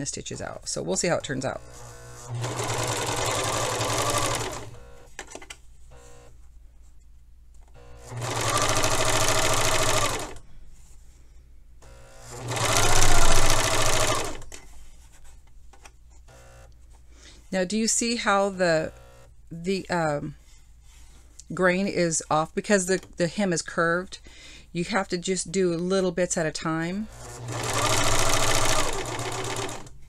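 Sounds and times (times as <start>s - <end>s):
serger machine stitching: 1.0s - 5.1s, 7.7s - 10.4s, 11.8s - 14.6s, 27.0s - 30.0s.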